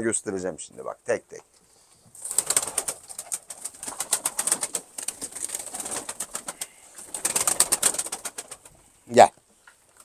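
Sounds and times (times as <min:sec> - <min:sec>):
pigeons flapping wings: 0:02.2 - 0:08.8.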